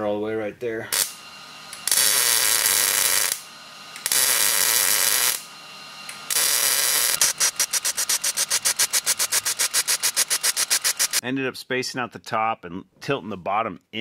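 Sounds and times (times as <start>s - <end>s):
welder arc crackling and hissing: 0.7s - 11.2s.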